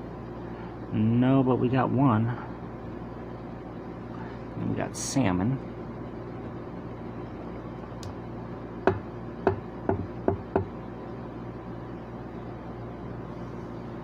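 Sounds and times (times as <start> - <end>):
steady low hum: 0.0 - 14.0
hard object tapping hard surface: 8.9 - 10.7.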